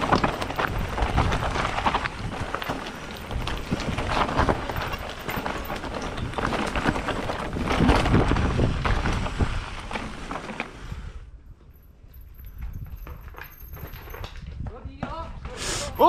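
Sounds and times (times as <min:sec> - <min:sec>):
bike clattering over rocks: 0:00.0 - 0:10.7
wind rushing over microphone: 0:06.2 - 0:09.9.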